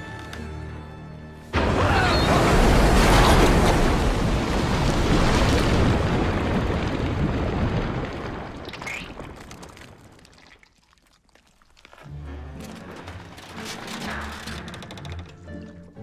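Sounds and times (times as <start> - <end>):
deep explosion rumble: 1.6 - 10.2
debris showering down: 1.6 - 12.0.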